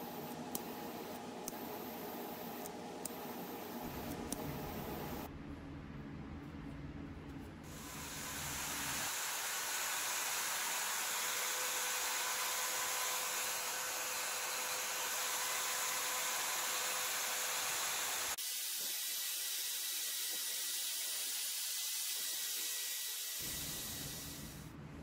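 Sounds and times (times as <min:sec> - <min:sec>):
drill buffing wheel whirring: 0:07.7 - 0:24.6.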